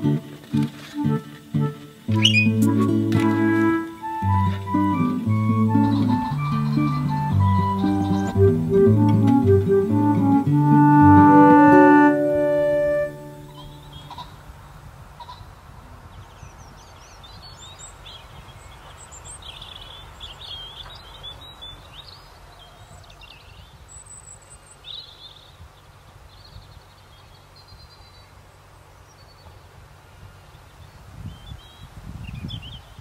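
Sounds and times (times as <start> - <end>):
high bird chirps: 2.1 - 3.2, 4.1 - 8.7.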